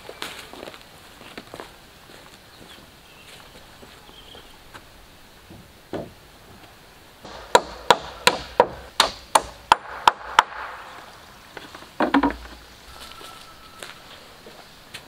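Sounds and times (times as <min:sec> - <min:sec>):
wood being chopped: 0:07.3 - 0:11.0, 0:12.0 - 0:12.6.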